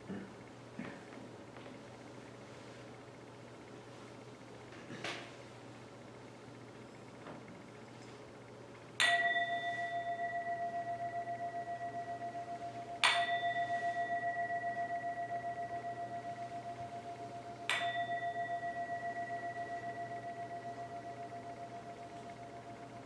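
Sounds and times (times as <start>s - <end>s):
singing bowl ringing: 9.0s - 23.0s.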